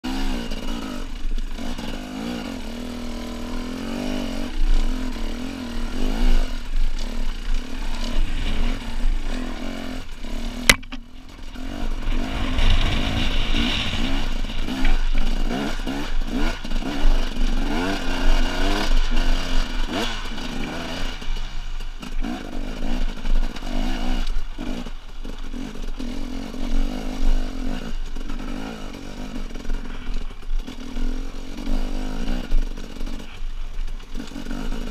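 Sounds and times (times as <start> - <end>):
motorcycle engine revving: 0.0 - 34.9
bike rattling over rocks: 3.8 - 34.9
sharp click: 10.7 - 11.0.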